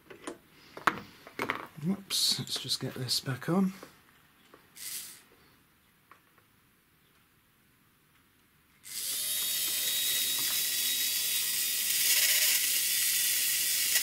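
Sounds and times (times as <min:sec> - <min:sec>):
electric motor whirring whine: 0:08.9 - 0:14.0.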